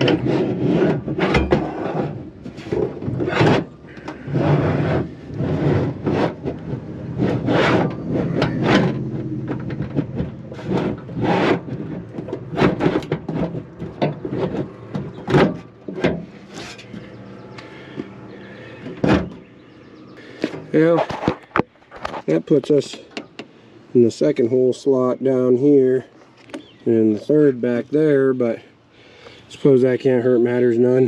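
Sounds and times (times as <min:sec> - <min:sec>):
toolbox drawer scraping: 0:00.0 - 0:19.5.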